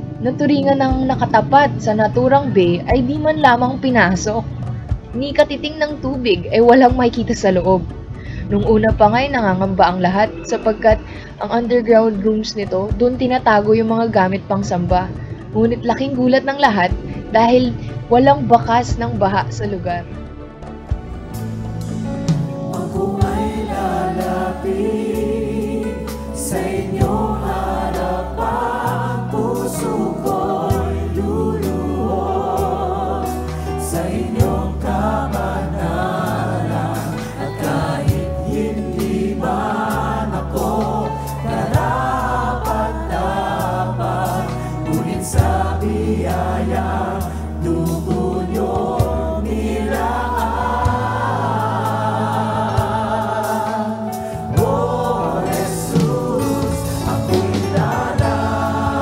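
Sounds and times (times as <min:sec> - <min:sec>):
many voices singing along: 0:22.3 - 0:59.0
man singing lead vocal: 0:54.6 - 0:59.0.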